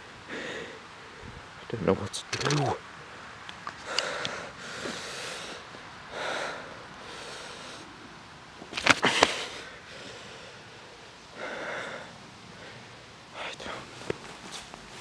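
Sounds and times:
person breathing hard: 0.2s - 0.9s, 3.8s - 8.0s, 9.0s - 13.9s
camera handled in dry grass: 2.2s - 2.8s, 8.7s - 9.3s.

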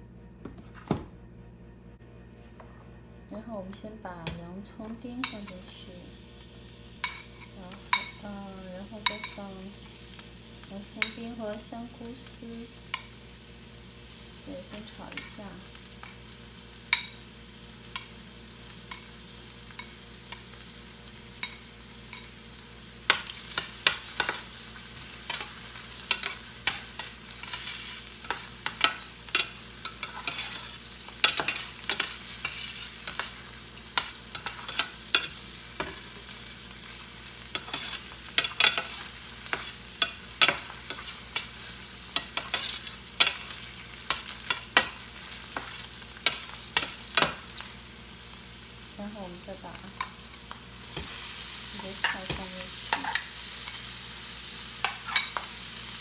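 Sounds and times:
vegetables sizzling in oil: 4.8s - 56.0s
metal spoon scraping pan: 25.2s - 33.4s, 37.5s - 41.6s, 42.2s - 47.7s.

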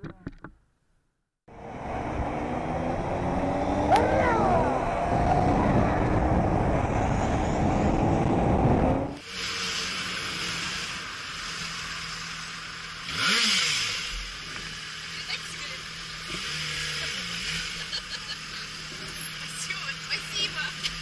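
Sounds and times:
motorcycle engine: 1.5s - 21.0s
wind rumble: 1.6s - 9.2s
slow traffic hiss: 9.2s - 13.1s.

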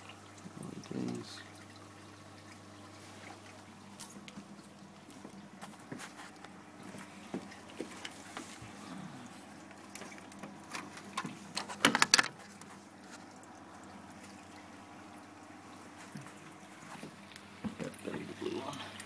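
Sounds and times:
water trickling through plumbing: 0.0s - 19.0s
sharp clicks and knocks: 10.4s - 12.4s.

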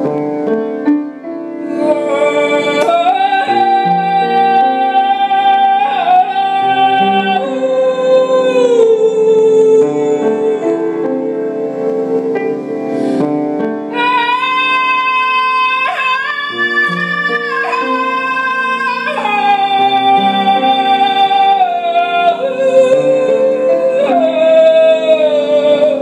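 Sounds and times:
piano accompaniment: 0.0s - 26.0s
woman singing long notes: 1.7s - 12.8s, 13.9s - 26.0s
woman breathing in: 12.8s - 13.3s.

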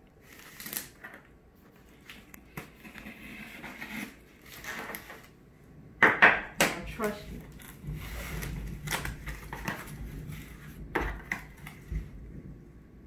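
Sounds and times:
cardboard box scraped open: 2.6s - 5.3s.

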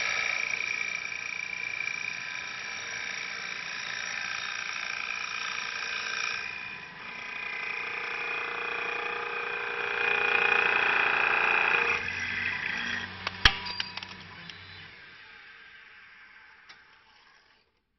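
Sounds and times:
lathe cutting tool whine: 0.0s - 17.6s
low machine hum: 6.4s - 16.6s.

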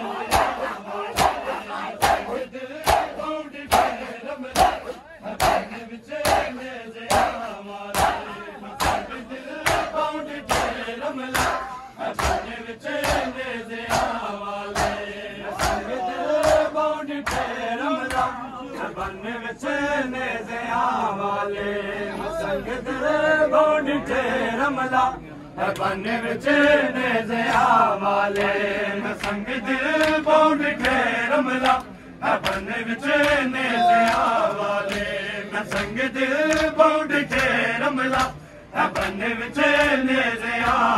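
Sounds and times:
rhythmic chest slapping: 0.0s - 18.4s, 27.4s - 40.9s
men chanting together: 0.0s - 40.9s.

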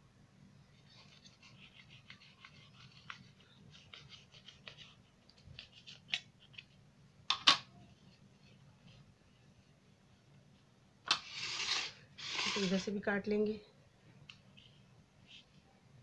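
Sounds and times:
knife scratching through pastry: 0.8s - 5.1s, 11.2s - 12.8s.

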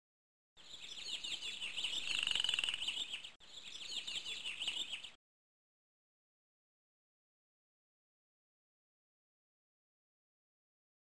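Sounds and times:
high chirping calls: 0.6s - 5.2s.

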